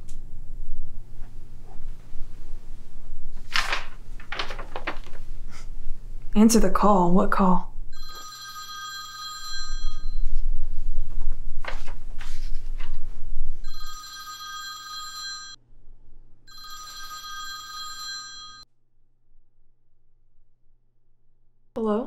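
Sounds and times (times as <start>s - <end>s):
rotary telephone ringing: 8.0s - 10.2s, 13.7s - 15.6s, 16.5s - 18.6s.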